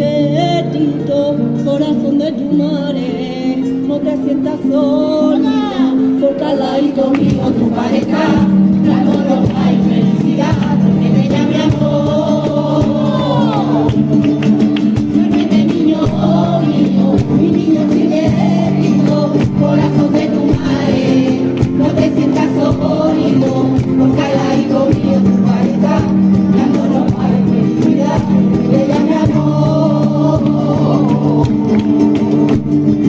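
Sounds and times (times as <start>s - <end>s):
strummed acoustic guitars: 0.0s - 33.0s
choir singing: 6.4s - 14.0s, 14.9s - 32.8s
rhythmic hand clapping: 7.0s - 33.0s.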